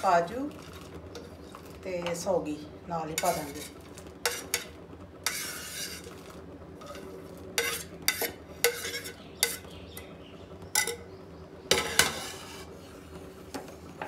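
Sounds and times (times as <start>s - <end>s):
knife scraping a ceramic plate: 3.2s - 6.1s, 6.8s - 9.7s, 11.7s - 12.7s.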